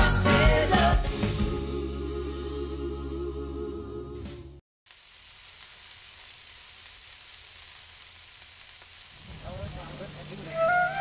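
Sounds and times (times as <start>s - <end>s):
steady hiss: 4.9s - 11.0s.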